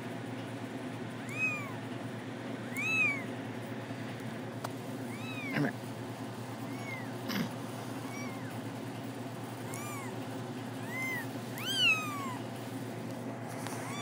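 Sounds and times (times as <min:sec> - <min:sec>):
kittens mewing: 0:01.2 - 0:01.9, 0:02.6 - 0:03.4, 0:04.9 - 0:08.8, 0:09.6 - 0:12.6, 0:13.7 - 0:14.0.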